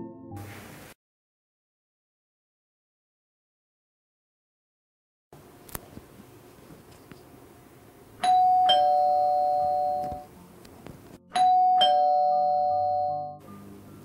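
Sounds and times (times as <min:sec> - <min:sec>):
ding-dong doorbell chime: 0:08.2 - 0:10.3, 0:11.3 - 0:13.4.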